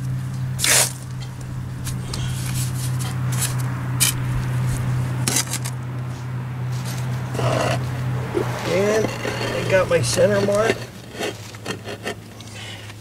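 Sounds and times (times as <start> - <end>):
steady low hum: 0.0 - 12.4
trowel scraping mortar on stone: 6.8 - 12.8.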